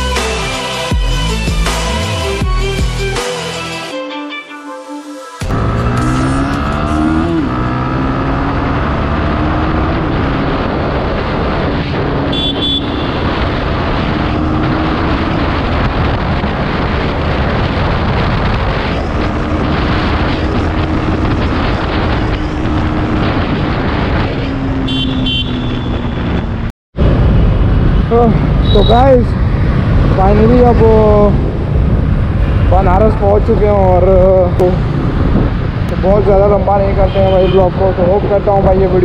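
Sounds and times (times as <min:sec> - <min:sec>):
motorcycle engine running: 0:05.4 - 0:10.5.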